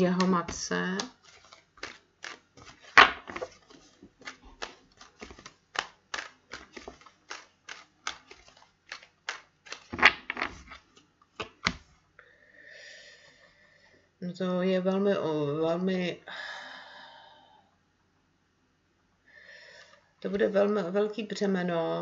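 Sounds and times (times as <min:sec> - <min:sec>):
cards being shuffled: 0:00.0 - 0:12.0.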